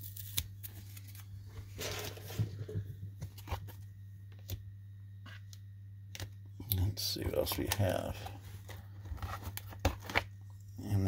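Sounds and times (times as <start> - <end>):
plastic sleeves rustling: 0.0 - 3.8, 7.3 - 10.3.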